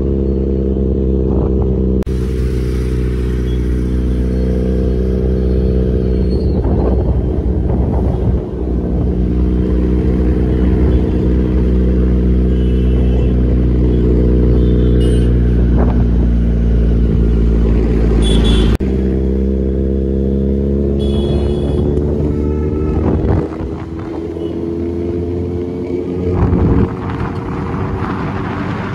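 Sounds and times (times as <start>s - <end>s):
motorcycle engine running: 0.0s - 27.3s.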